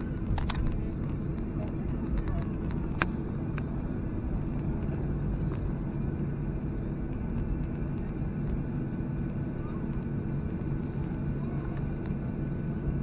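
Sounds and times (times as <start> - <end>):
jet engines rumbling in cabin: 0.0 - 13.0.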